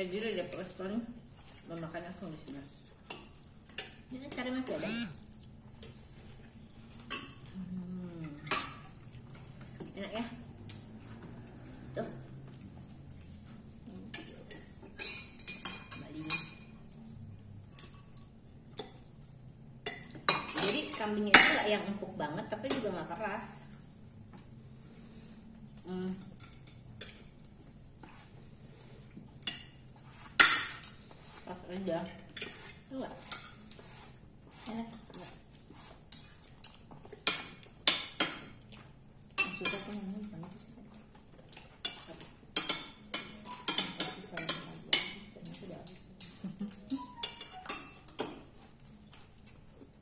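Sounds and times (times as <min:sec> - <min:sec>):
cutlery clinking on plates: 0:41.5 - 0:49.6.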